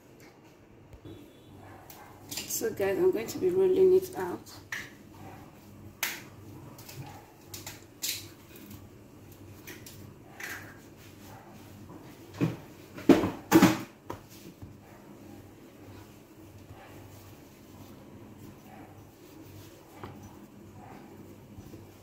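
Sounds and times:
rolling pin rolling dough: 8.3s - 22.0s.

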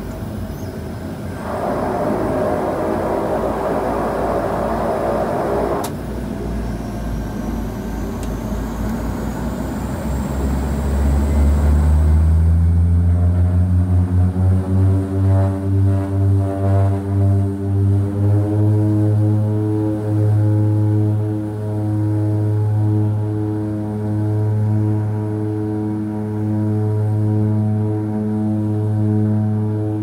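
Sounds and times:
propellers droning: 0.0s - 30.0s
rushing noise: 1.0s - 6.3s
click: 8.2s - 9.0s.

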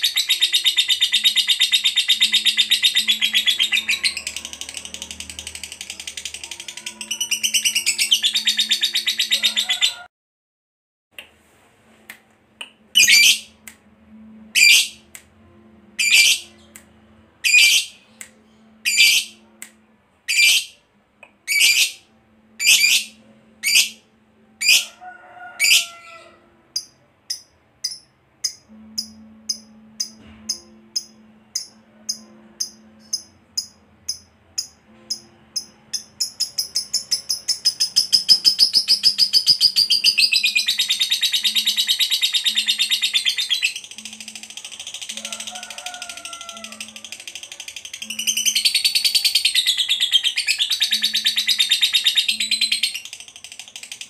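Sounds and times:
lovebird calling: 0.0s - 4.5s, 13.0s - 13.5s, 14.6s - 15.0s, 16.0s - 16.5s, 17.4s - 18.0s, 18.8s - 19.4s, 21.5s - 22.0s, 22.6s - 24.0s, 35.6s - 44.3s
lovebird chattering trill: 0.0s - 9.9s, 13.0s - 13.5s, 16.0s - 16.4s, 17.5s - 17.9s, 18.9s - 19.4s, 21.5s - 22.0s, 35.6s - 53.1s.

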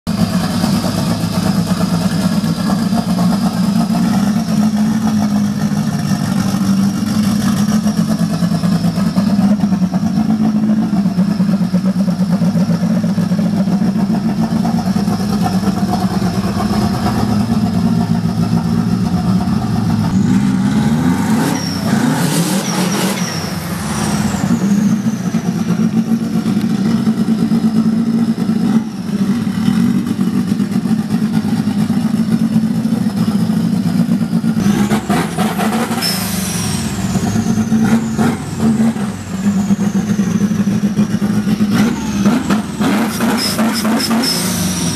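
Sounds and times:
car engine idling: 0.1s - 44.9s
high turbo whine: 0.1s - 44.9s
engine revving: 0.3s - 32.9s, 33.9s - 44.9s
falling turbo whistle: 35.2s - 40.9s.

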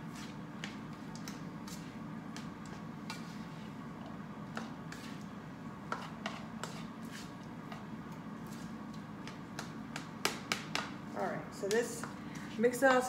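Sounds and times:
steady low hum: 0.0s - 13.0s
spoon scraping a wok: 5.9s - 7.4s.

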